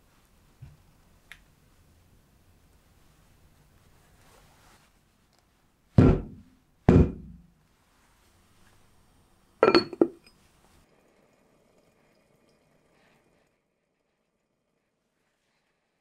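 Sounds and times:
glass lid clinking on pan: 0:09.6 - 0:10.3.

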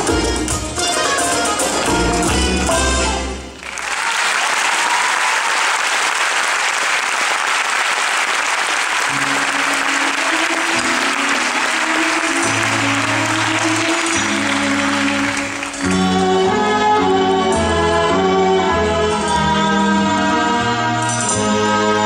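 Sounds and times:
music: 0:00.0 - 0:03.8, 0:08.8 - 0:22.0
audience applause: 0:03.5 - 0:16.2.

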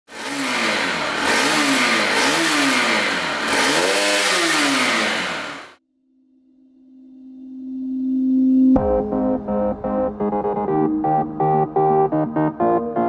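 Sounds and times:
motorcycle engine revving: 0:00.1 - 0:05.8.

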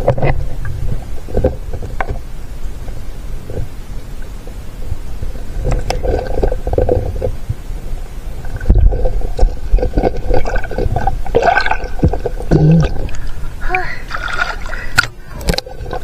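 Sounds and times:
muffled underwater gurgling: 0:02.9 - 0:16.0.

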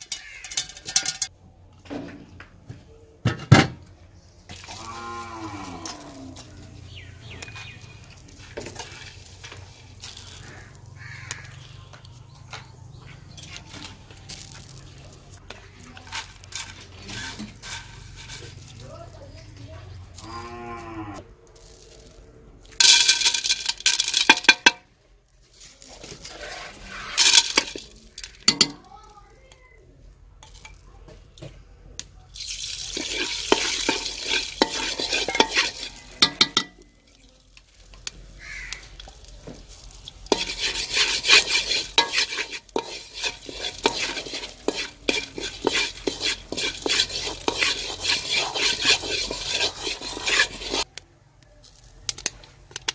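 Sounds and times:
spoon scraping corn kernels in metal pan: 0:00.0 - 0:01.3, 0:04.5 - 0:11.8, 0:12.7 - 0:19.2, 0:22.7 - 0:24.7, 0:25.6 - 0:28.8, 0:32.4 - 0:50.9.

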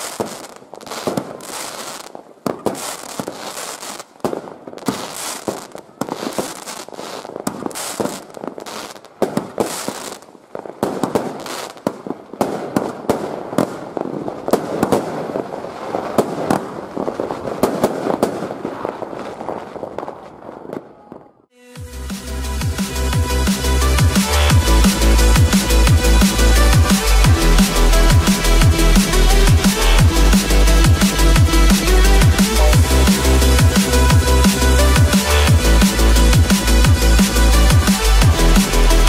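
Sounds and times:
firework launches with hiss: 0:00.0 - 0:20.0
firework crackle and bangs: 0:00.0 - 0:39.0.

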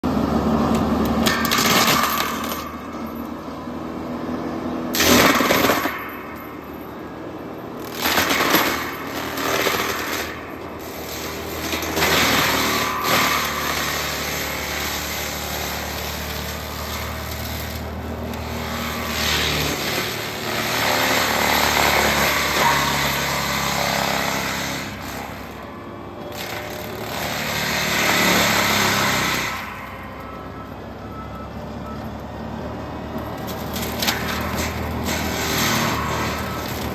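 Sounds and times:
diesel engine working hard: 0:00.0 - 0:36.9.

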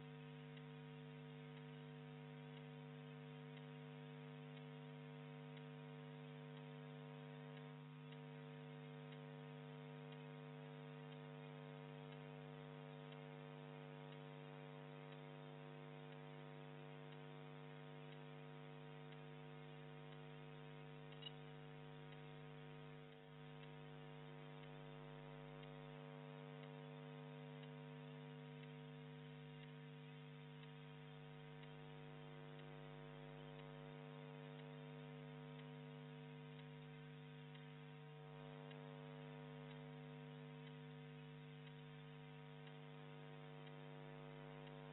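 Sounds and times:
electrical mains hum: 0:00.0 - 0:44.9
small click: 0:21.0 - 0:21.5.

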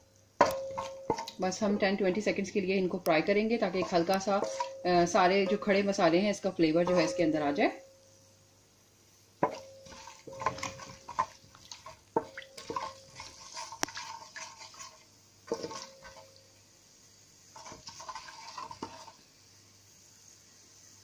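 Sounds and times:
oil sizzling: 0:00.0 - 0:21.0
spoon scraping metal pot: 0:00.4 - 0:07.8, 0:09.4 - 0:16.3, 0:17.6 - 0:19.2.

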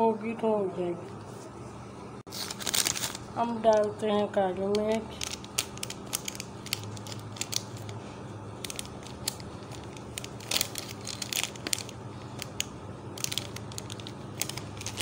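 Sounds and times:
plastic packet crinkling: 0:02.3 - 0:04.0, 0:04.7 - 0:08.0, 0:08.6 - 0:15.0.

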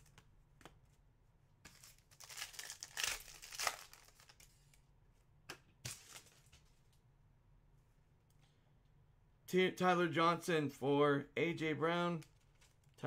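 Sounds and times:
foil wrapper crinkling: 0:01.7 - 0:04.4.

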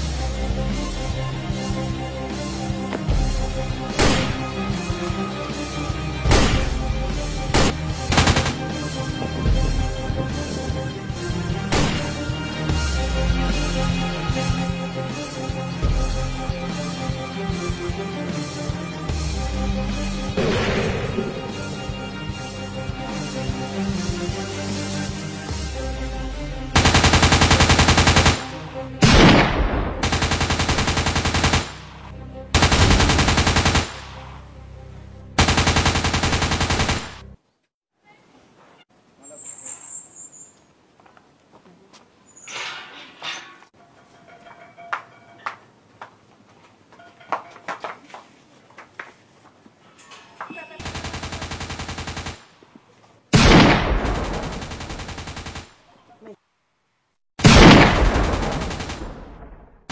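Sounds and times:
background music: 0:00.0 - 0:37.4, 0:53.4 - 0:56.3, 0:57.4 - 0:59.6
automatic gunfire: 0:07.6 - 0:08.6, 0:26.8 - 0:29.4, 0:30.0 - 0:31.9, 0:32.6 - 0:34.2, 0:35.4 - 0:37.2, 0:50.8 - 0:52.4, 0:57.4 - 0:59.2
machine gun bursts: 0:26.8 - 0:28.5, 0:30.0 - 0:31.8, 0:32.6 - 0:34.0, 0:35.4 - 0:37.2, 0:58.0 - 0:59.0
heavy blast: 0:57.4 - 0:59.9.

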